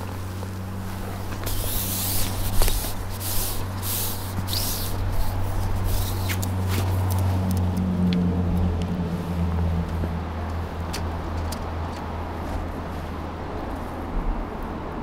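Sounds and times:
splashy hissing rustles: 0:00.0 - 0:07.1
low engine hum: 0:00.0 - 0:15.0.

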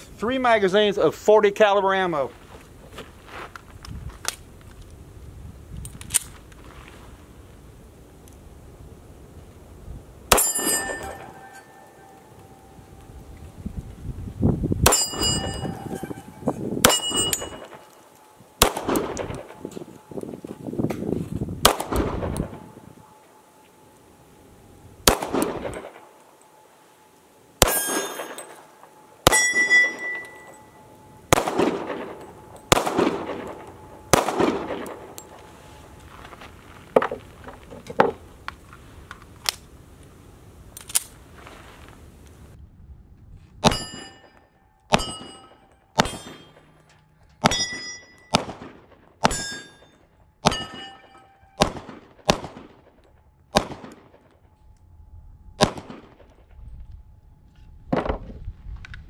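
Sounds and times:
pistol shots: 0:10.3 - 0:12.3, 0:14.8 - 0:18.0, 0:18.6 - 0:19.8, 0:21.6 - 0:22.8, 0:25.0 - 0:26.2, 0:27.6 - 0:30.6, 0:31.3 - 0:35.4, 0:44.9 - 0:46.8, 0:47.4 - 0:54.3, 0:55.6 - 0:56.4
steel target ringing: 0:10.3 - 0:13.2, 0:14.8 - 0:18.0, 0:27.6 - 0:35.6, 0:43.6 - 0:48.4, 0:49.2 - 0:51.6.

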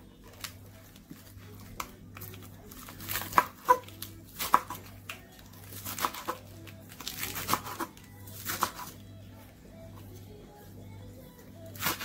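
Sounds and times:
knife chopping lettuce on wood: 0:02.9 - 0:06.4, 0:07.0 - 0:09.0.

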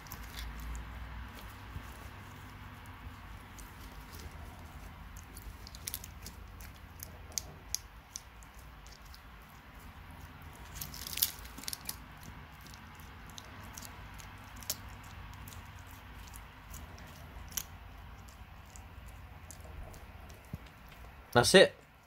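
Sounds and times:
lizard crunching snail shell: 0:00.0 - 0:22.0.

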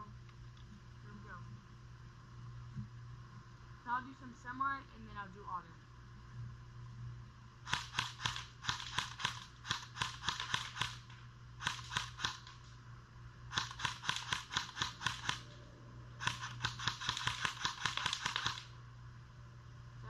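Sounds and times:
airsoft gun firing quick shots: 0:07.6 - 0:12.6, 0:13.5 - 0:15.6, 0:16.2 - 0:18.8.

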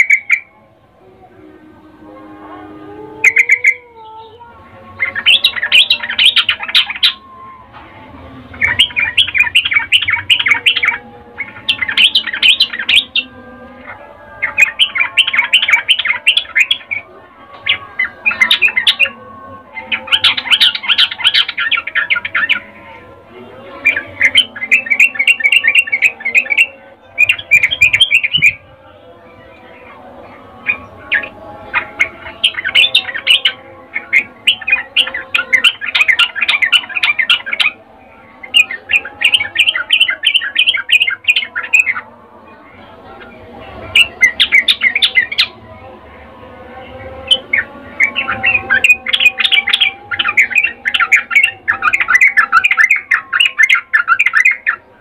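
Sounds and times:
bulbul chattering calls: 0:00.0 - 0:00.5, 0:03.2 - 0:03.9, 0:08.5 - 0:17.0, 0:30.7 - 0:37.8.

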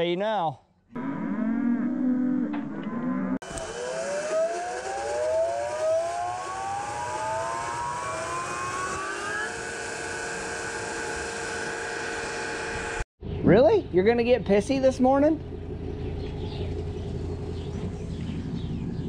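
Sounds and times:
cow lowing: 0:00.9 - 0:03.4
vehicle engine accelerating: 0:15.4 - 0:19.0.

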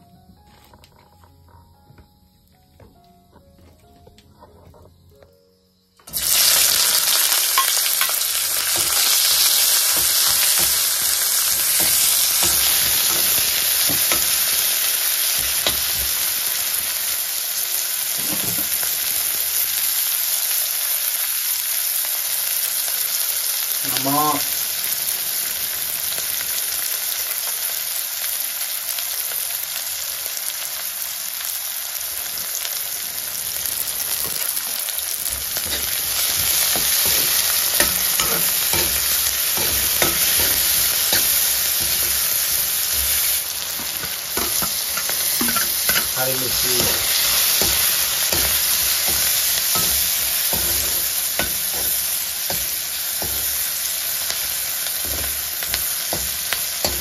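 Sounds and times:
food sizzling in a pan: 0:06.0 - 0:57.0
utensil knocking and scraping pan: 0:35.3 - 0:53.6, 0:55.0 - 0:57.0.

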